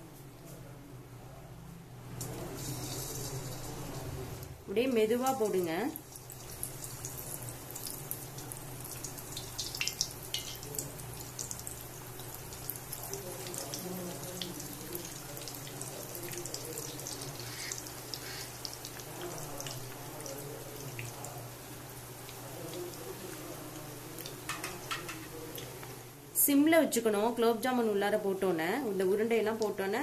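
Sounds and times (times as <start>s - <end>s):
oil sizzling and bubbling: 2.2s - 26.5s, 29.0s - 30.0s
oil popping and crackling: 5.3s - 25.9s.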